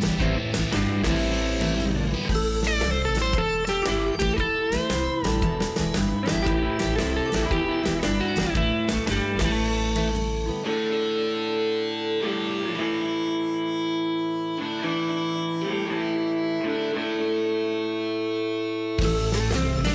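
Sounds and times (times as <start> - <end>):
deep bass: 0.0 - 10.6, 19.0 - 19.9
guitar playing chords: 0.0 - 19.9.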